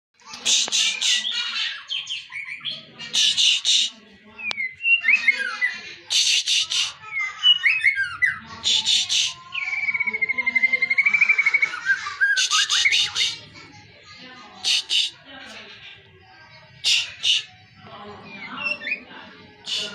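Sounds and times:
harsh rattling bird calls: 0.2 - 13.6, 14.5 - 19.9
bird singing: 0.8 - 13.4, 16.9 - 19.9
whistled bird slurs: 6.1 - 13.4, 19.6 - 19.9.

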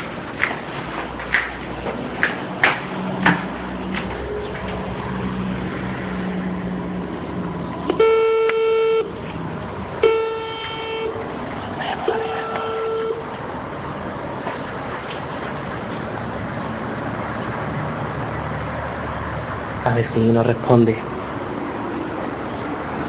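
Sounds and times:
door intercom buzzing: 12.0 - 13.3.

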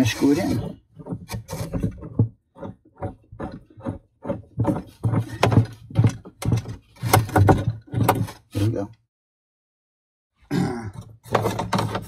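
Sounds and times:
plastic clicks and knocks: 0.6 - 8.4, 11.0 - 12.0.

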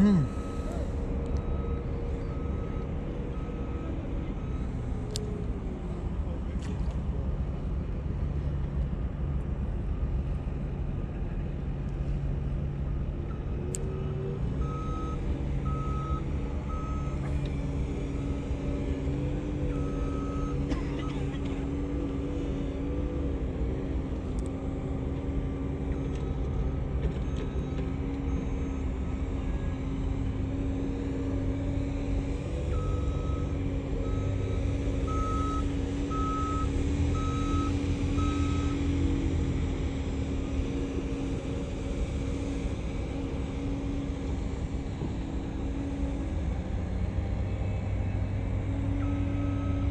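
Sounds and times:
reversing alarm beeping: 0.0 - 4.9, 14.6 - 17.2, 18.1 - 21.2, 32.4 - 38.9, 49.0 - 49.9
diesel engine running: 0.0 - 49.9.

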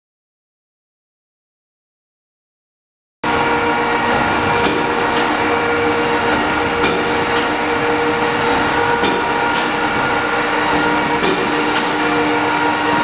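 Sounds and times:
stationary engine humming: 3.2 - 13.0.

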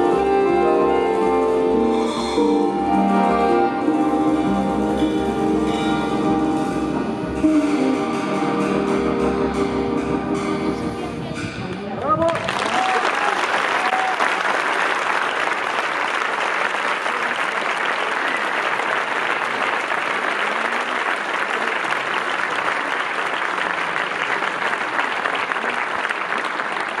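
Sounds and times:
audience applauding: 11.8 - 27.0.

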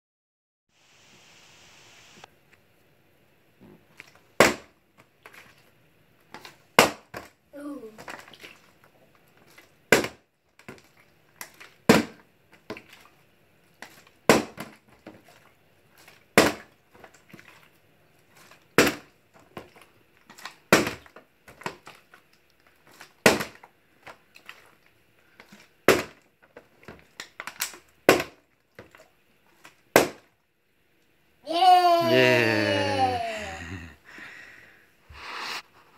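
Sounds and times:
plastic bottle landing on floor: 4.4 - 4.7, 6.8 - 7.3, 9.9 - 10.2, 11.9 - 12.2, 14.3 - 14.8, 16.4 - 16.6, 18.8 - 19.1, 20.7 - 21.1, 23.2 - 23.6, 25.9 - 26.2, 27.6 - 28.4, 29.9 - 30.3.

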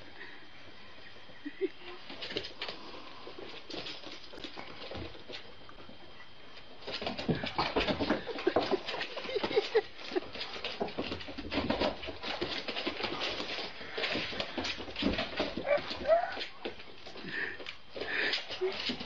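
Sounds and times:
dog whimpering: 15.6 - 16.6.

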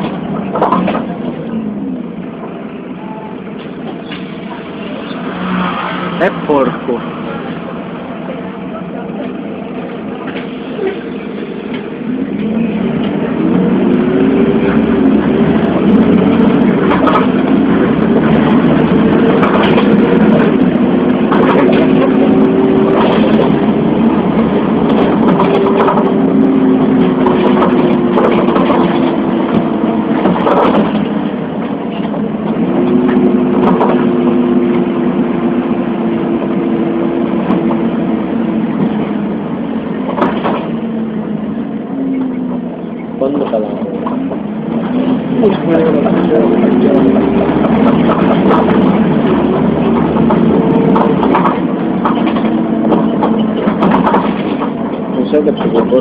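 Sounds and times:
vehicle engine driving: 0.0 - 56.0
knocks and rattles: 15.3 - 34.8, 40.0 - 40.8, 43.4 - 56.0.

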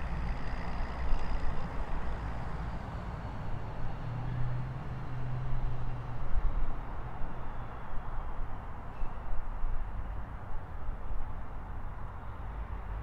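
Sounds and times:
traffic rumble: 0.0 - 6.2.

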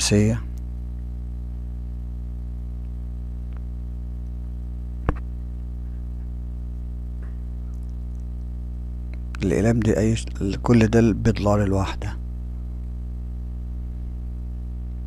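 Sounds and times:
low buzzy hum: 0.0 - 15.0.

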